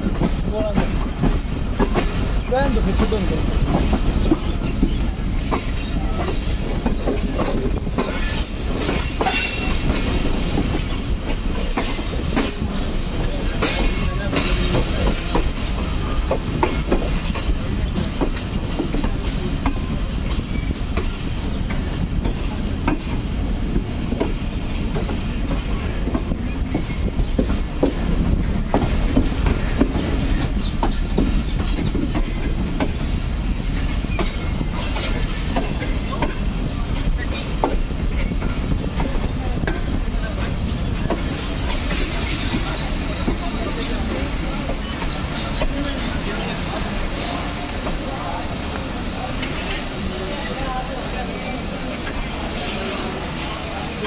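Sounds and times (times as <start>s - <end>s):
wheels clicking over rail joints: 0.0s - 50.9s
train rumbling on track: 0.0s - 54.0s
high wheel squeal: 44.4s - 45.7s, 53.5s - 54.0s.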